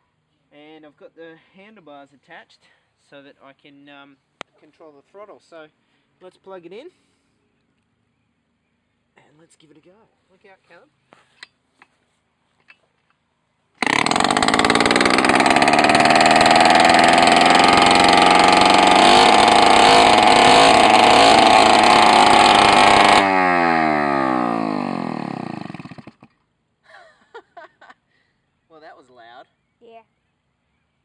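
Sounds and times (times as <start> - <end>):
small motorcycle engine running: 13.8 - 26.3.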